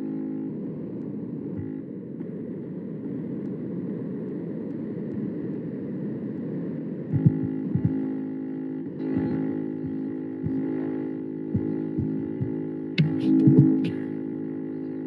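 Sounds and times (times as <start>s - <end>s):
low rushing background noise: 0.0s - 15.0s.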